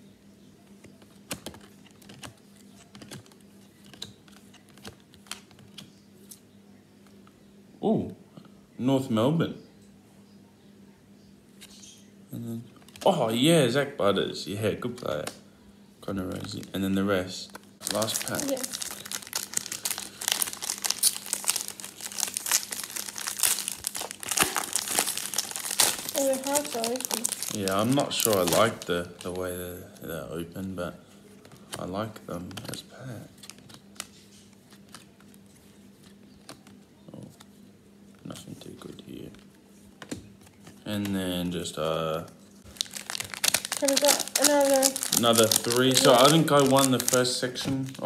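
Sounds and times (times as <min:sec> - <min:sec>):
trading cards shuffled by hand: 0:00.8 - 0:06.4, 0:17.5 - 0:28.9, 0:42.8 - 0:48.0
foil wrappers crinkling and tearing: 0:17.8 - 0:29.4, 0:42.6 - 0:48.0.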